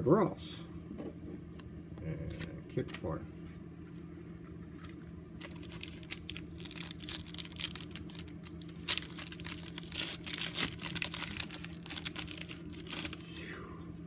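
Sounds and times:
foil wrapper tearing and crinkling: 0:04.7 - 0:13.3.

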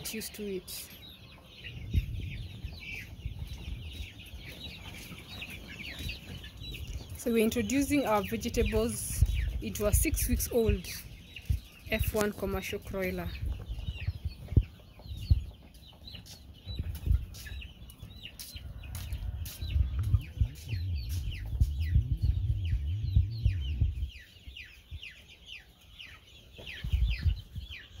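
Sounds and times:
chicks peeping: 0:00.0 - 0:28.0
low rumble: 0:19.1 - 0:25.0
low thumps: 0:19.2 - 0:24.3.

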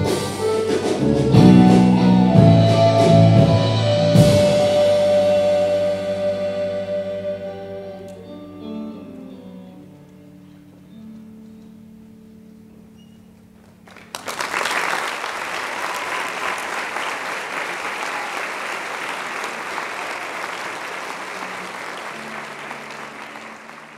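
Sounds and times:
audience applause: 0:13.8 - 0:23.9.

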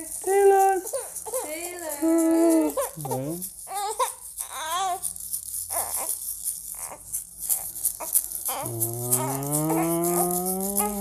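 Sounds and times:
baby rattle shaken: 0:00.0 - 0:11.0
low drawn-out moo-like voice: 0:08.6 - 0:11.0.

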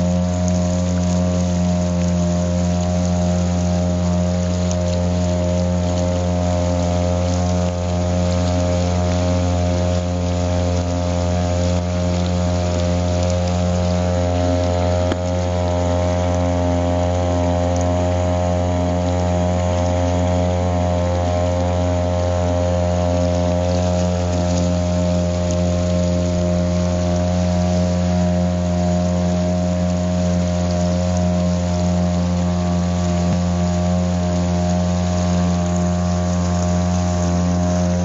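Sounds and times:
boat motor humming: 0:00.0 - 0:38.0.

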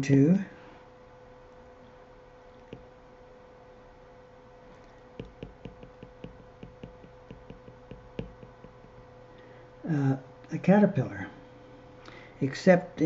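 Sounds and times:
stylus tapping on glass screen: 0:05.2 - 0:09.1.

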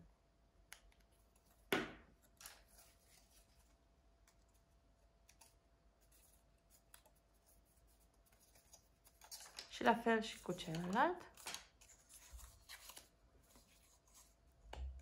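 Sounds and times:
paper strips rustling: 0:02.3 - 0:14.4.

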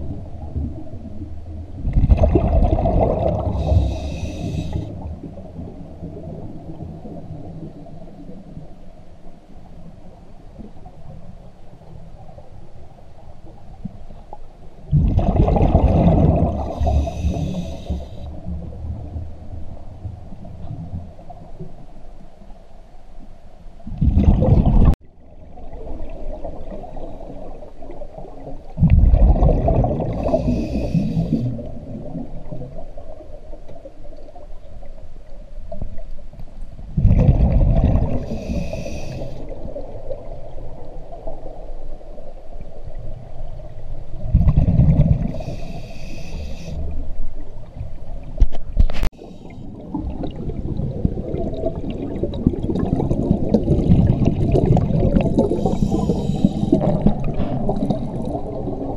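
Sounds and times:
exhaled bubbles gurgling: 0:00.0 - 0:08.5, 0:14.9 - 0:21.0, 0:23.9 - 0:34.5, 0:36.9 - 0:41.8, 0:42.7 - 0:58.9
regulator hiss: 0:03.6 - 0:04.9, 0:16.8 - 0:18.3, 0:38.3 - 0:39.4, 0:45.4 - 0:46.9.

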